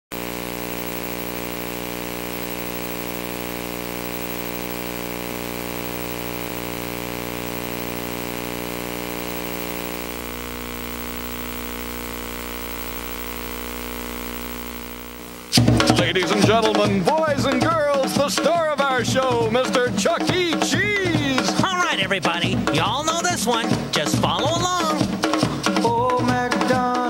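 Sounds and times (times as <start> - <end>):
steady mechanical hum: 0.2 - 15.6.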